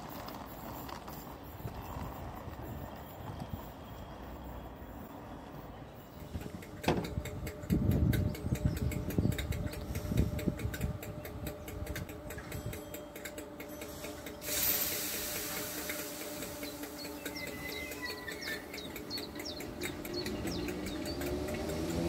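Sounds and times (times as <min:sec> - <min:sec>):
train whine pulling away: 0:00.0 - 0:22.0
hiss of air: 0:13.8 - 0:17.7
birds chirping: 0:16.3 - 0:22.0.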